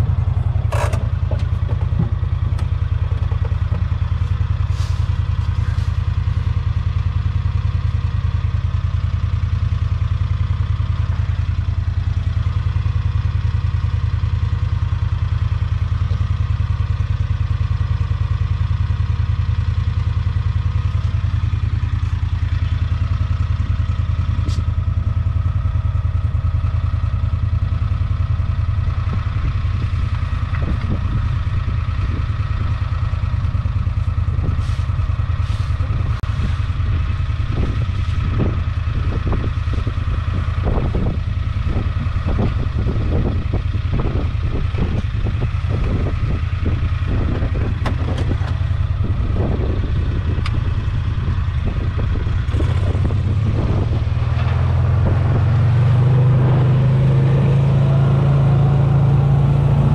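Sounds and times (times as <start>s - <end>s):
small vehicle engine running: 0.0s - 59.9s
vehicle rattling over rough ground: 0.0s - 59.9s
knocks and bumps: 0.6s - 4.0s.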